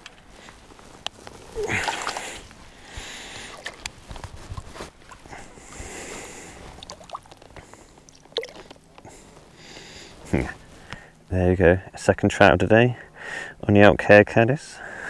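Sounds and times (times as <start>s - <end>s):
water splashing in net: 1.6s - 2.4s.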